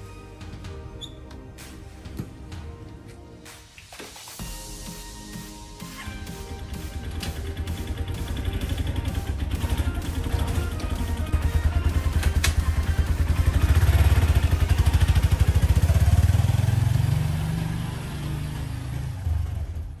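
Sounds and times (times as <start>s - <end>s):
motorcycle engine passing by: 7.0s - 20.0s.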